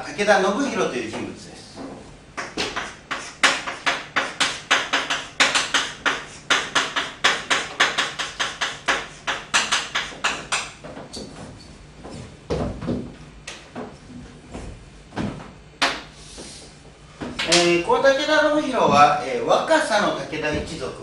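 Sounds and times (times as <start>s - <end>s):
chalk scraping on blackboard: 2.6s - 10.4s.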